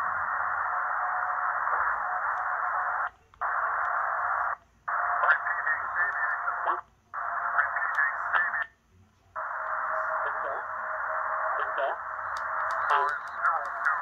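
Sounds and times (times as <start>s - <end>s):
radio static hiss: 0.0s - 14.0s
mistuned radio voice: 2.6s - 8.8s, 9.4s - 14.0s.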